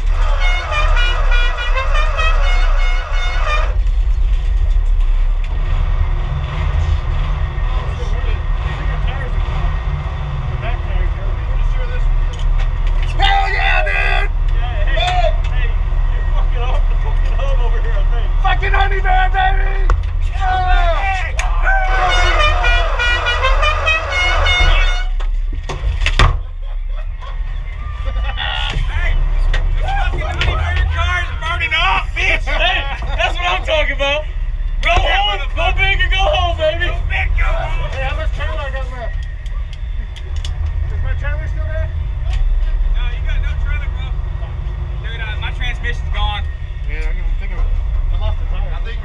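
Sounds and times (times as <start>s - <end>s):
vehicle horn short blasts: 0.0s - 3.8s, 21.8s - 25.2s
steady low rumble: 0.0s - 49.0s.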